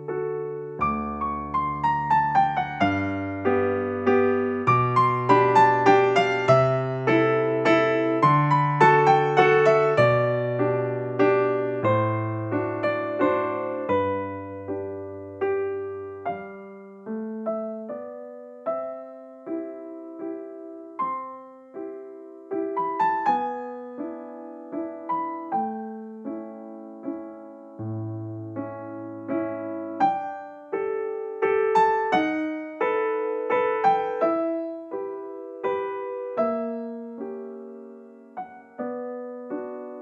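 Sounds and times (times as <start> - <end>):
gentle piano melody: 0.0 - 40.0.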